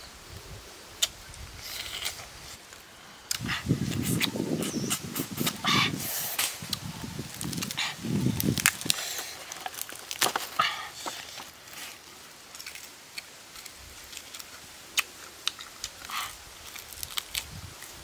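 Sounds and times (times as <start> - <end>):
meat tearing: 8.4 - 11.5, 12.5 - 17.9.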